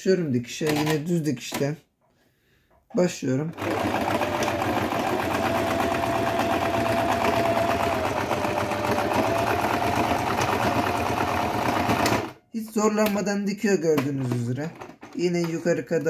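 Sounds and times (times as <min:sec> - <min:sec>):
sewing machine motor whine: 0:03.6 - 0:12.4.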